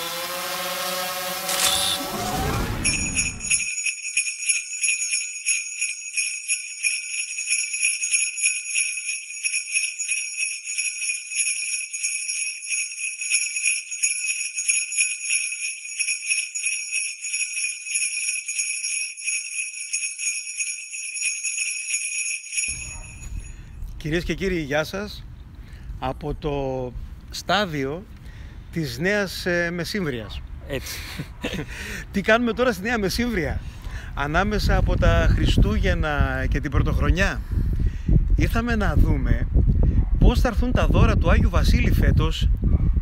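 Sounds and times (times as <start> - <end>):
low falling tone: 0.0 - 3.7
sleigh bells jingling: 1.6 - 23.9.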